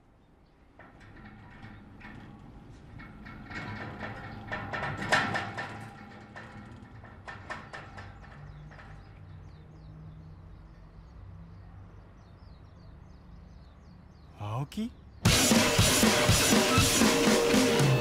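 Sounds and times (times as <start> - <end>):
metal gate rattling and clanking: 0.4 - 9.8.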